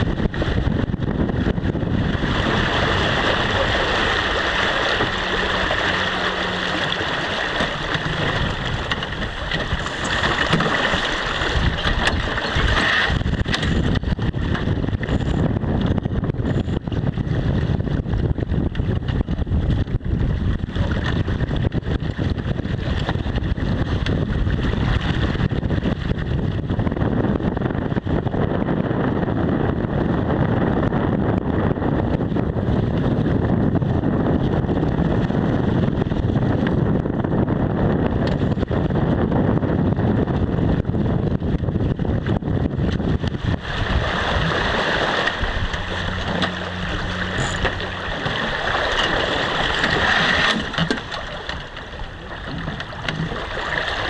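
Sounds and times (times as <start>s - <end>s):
water rushing past hull: 0.0s - 54.0s
wind buffeting microphone: 0.0s - 54.0s.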